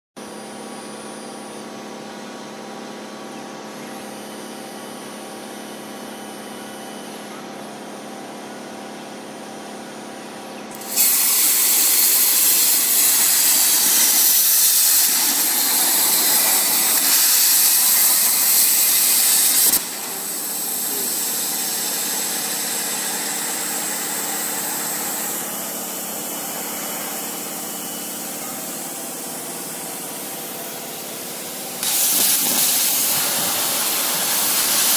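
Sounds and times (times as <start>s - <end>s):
machine humming: 10.6s - 34.9s
plasma arc hissing: 10.7s - 29.2s, 29.9s - 34.9s.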